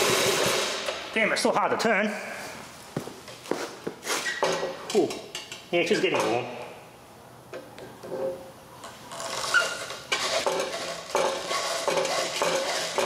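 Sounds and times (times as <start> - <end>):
compressor turned by hand clattering: 0.0 - 1.0, 9.1 - 13.0.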